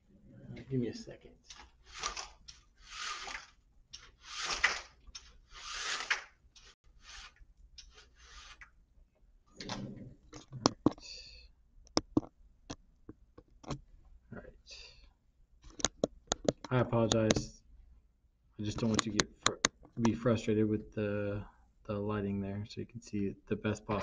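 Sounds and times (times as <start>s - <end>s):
sharp clicks and knocks: 9.6s - 11.1s, 11.8s - 13.9s, 15.6s - 17.5s, 18.7s - 20.2s.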